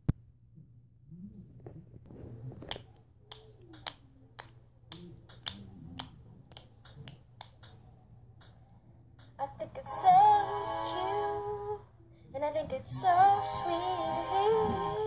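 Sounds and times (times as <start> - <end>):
faint low hum: 0.0 - 15.0
fingers snapping: 2.6 - 7.8, 8.4 - 8.6, 9.2 - 9.4.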